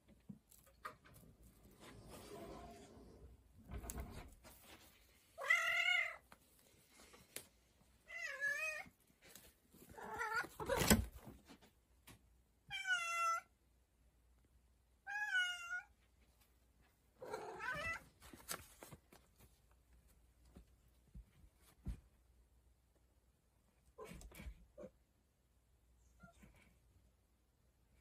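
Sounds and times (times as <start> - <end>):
cat meowing: 8.1 - 8.9, 10.0 - 10.8, 15.1 - 15.9, 17.2 - 18.0.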